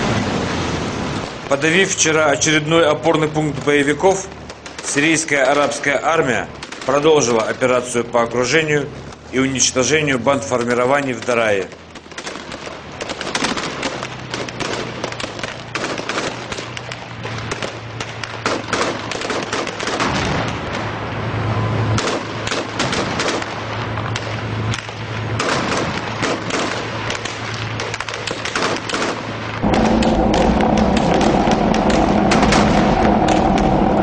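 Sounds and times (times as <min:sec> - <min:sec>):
armoured vehicle engine drone: 0:00.0 - 0:28.2, 0:29.2 - 0:34.0
gunfire bursts: 0:11.1 - 0:20.8, 0:22.0 - 0:33.4.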